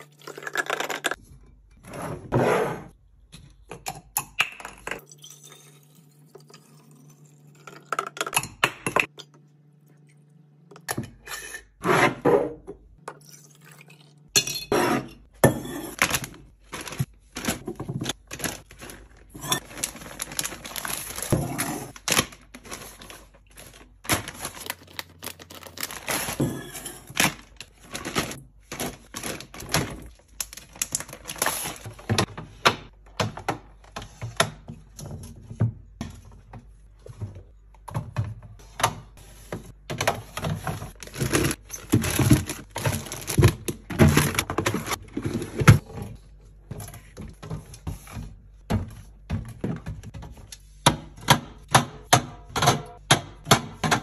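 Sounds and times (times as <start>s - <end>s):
plastic bag crinkling: 16.0s - 26.4s, 41.0s - 45.3s.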